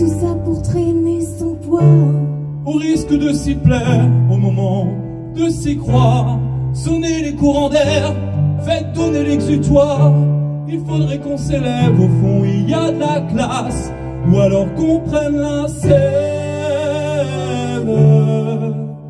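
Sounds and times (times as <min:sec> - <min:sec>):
keyboard piano chords: 0:00.0 - 0:19.0
man singing: 0:00.0 - 0:19.0.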